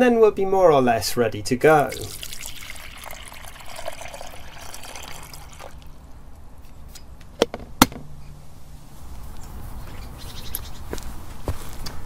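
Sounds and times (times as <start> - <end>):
water pouring into kettle: 1.8 - 5.9.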